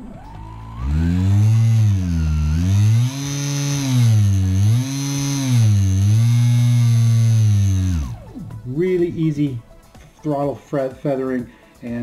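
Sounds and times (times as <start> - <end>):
electric motor humming: 0.0 - 8.4.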